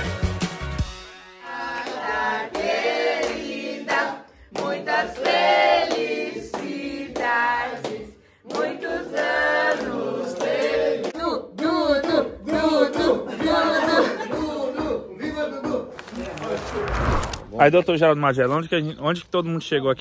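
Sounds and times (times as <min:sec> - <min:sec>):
group singing a birthday song: 0:01.3 - 0:16.8.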